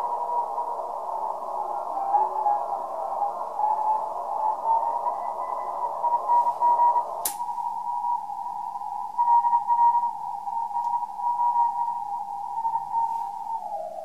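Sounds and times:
receiver hiss: 0.0s - 14.0s
sharp click: 7.2s - 7.4s.

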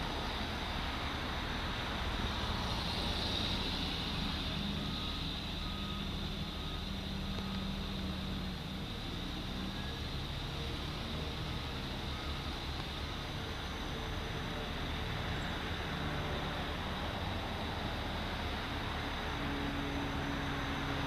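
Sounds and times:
diesel engine running: 0.0s - 21.0s
passing cars: 0.0s - 21.0s
faint backup alarm beeps: 3.3s - 8.3s, 9.6s - 11.3s, 12.0s - 13.0s.

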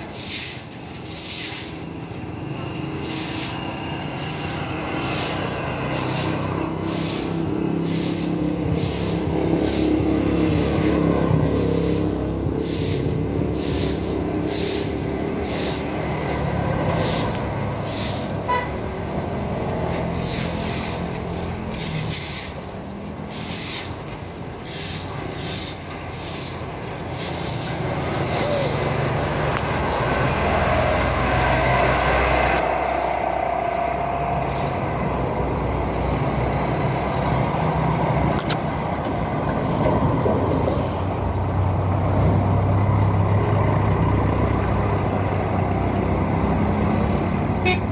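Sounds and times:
broom swishing on wet concrete: 0.0s - 2.2s, 2.8s - 18.6s, 19.7s - 35.2s, 35.8s - 37.7s, 39.5s - 42.2s
road traffic rumble: 0.0s - 47.9s.

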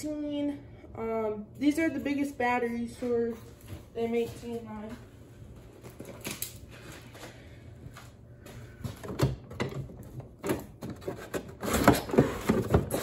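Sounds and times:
cardboard packaging rustling: 10.0s - 13.0s.

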